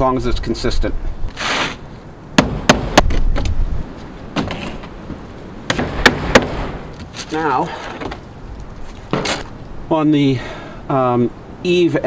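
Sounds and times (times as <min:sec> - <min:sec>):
hammer striking nails: 0:02.4 - 0:03.5, 0:05.7 - 0:06.9.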